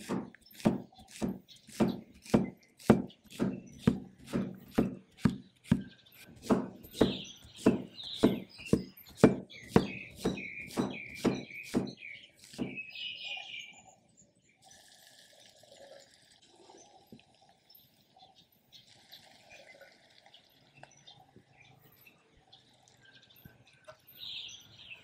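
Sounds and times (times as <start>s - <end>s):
cleaver chopping on wooden board: 0.0s - 12.9s.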